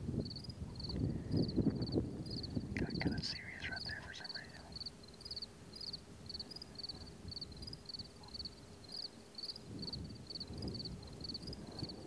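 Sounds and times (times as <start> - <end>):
cricket chirping: 0.2 - 12.0.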